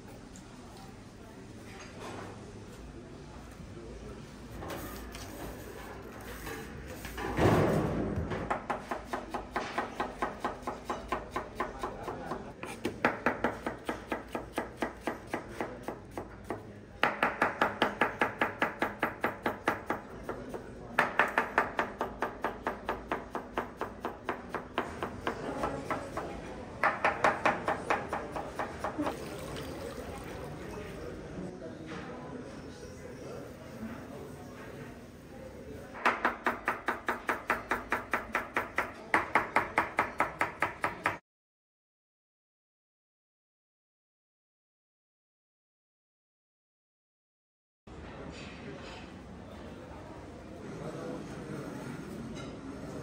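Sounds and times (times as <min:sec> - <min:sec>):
knife chopping on cutting board: 0:08.5 - 0:20.4.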